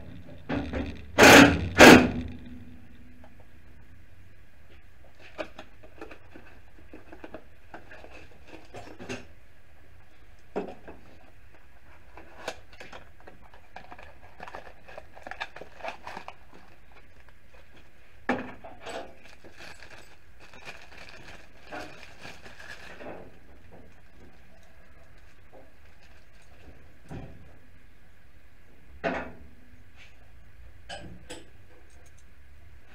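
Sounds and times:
steady low hum: 0:00.0 - 0:32.9
cardboard rustling: 0:12.2 - 0:17.8, 0:19.0 - 0:24.2.

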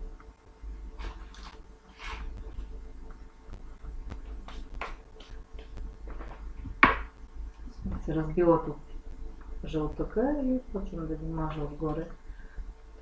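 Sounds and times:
low steady hum: 0:00.0 - 0:13.0
baking paper rustling: 0:01.0 - 0:02.4.

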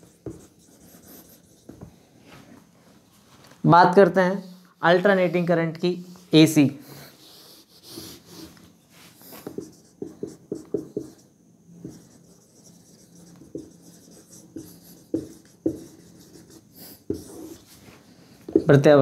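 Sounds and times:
marker pen writing on whiteboard: 0:00.0 - 0:02.0, 0:07.1 - 0:08.6, 0:09.2 - 0:19.0.

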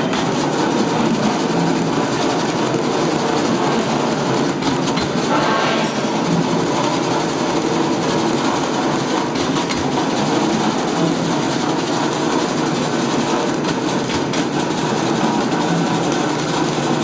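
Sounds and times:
wrapping machine rattling hum: 0:00.0 - 0:17.0.

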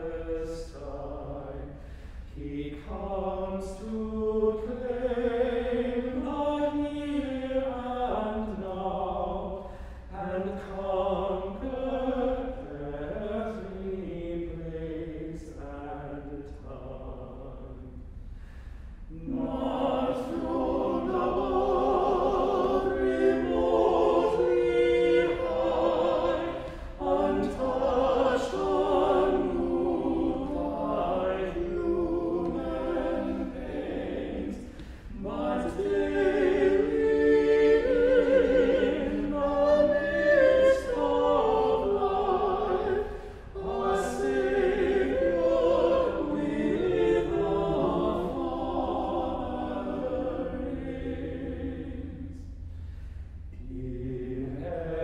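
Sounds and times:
men's vocal ensemble singing: 0:19.2 - 0:52.3.

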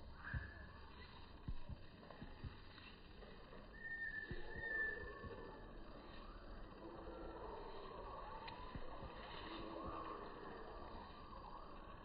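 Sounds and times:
low distant ambient hum: 0:00.0 - 0:12.0
soft indistinct tones: 0:00.0 - 0:12.0.

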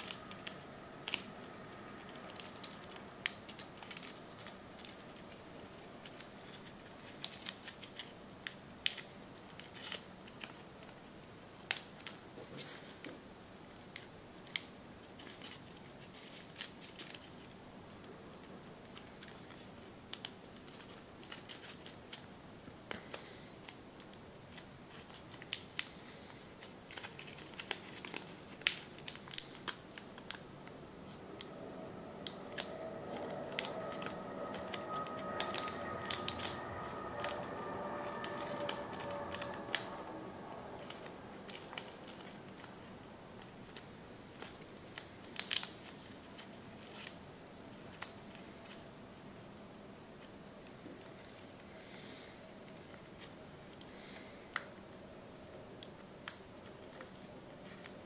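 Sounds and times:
folded paper crinkling: 0:24.5 - 0:30.5, 0:40.8 - 0:47.2
steady musical tones: 0:30.7 - 0:43.4.

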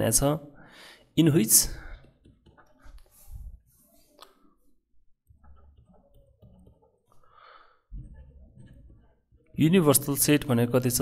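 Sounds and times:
stylus tapping on pen tablet: 0:01.9 - 0:03.2, 0:05.2 - 0:07.2.

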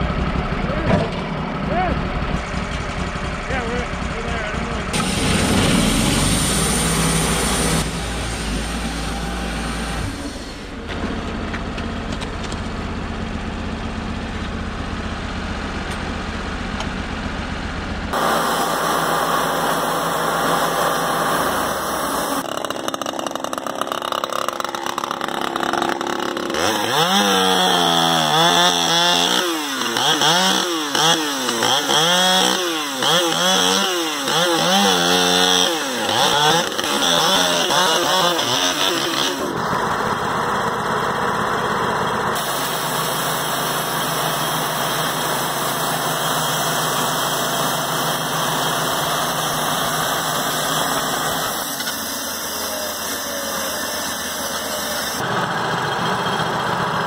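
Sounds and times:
chainsaw idling: 0:00.0 - 0:57.0
chainsaw cutting wood: 0:04.9 - 0:10.7, 0:18.1 - 0:40.5, 0:42.2 - 0:55.3.

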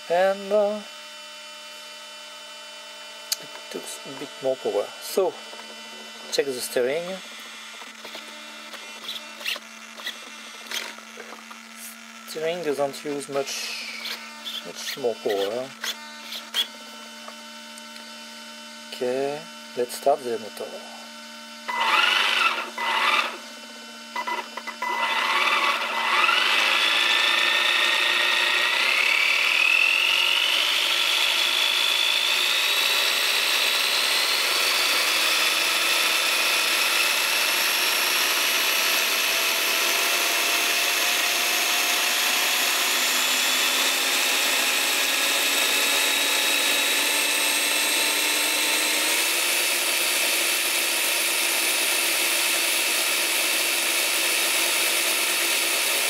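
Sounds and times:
electric motor whining: 0:00.0 - 0:56.0.

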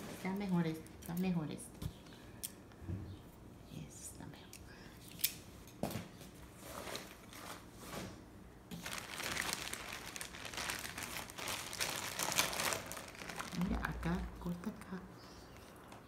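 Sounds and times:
crinkly snipping rustle: 0:08.7 - 0:14.8.

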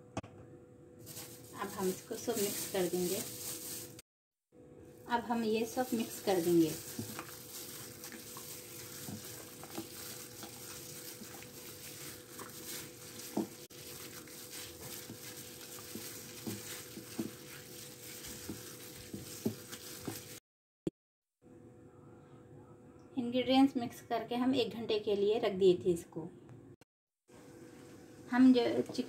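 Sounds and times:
wet squishing of chicken in marinade: 0:05.6 - 0:20.4.

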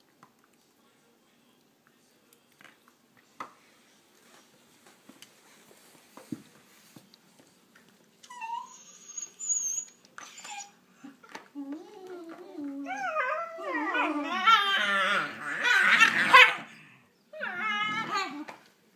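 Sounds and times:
puppy whining: 0:08.2 - 0:18.6.

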